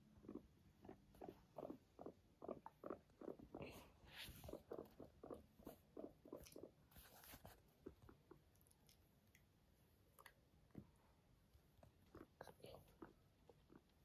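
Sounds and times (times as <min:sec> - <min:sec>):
guinea pig purring: 0:00.0 - 0:09.0, 0:11.5 - 0:14.0
faint rustles: 0:03.5 - 0:08.2.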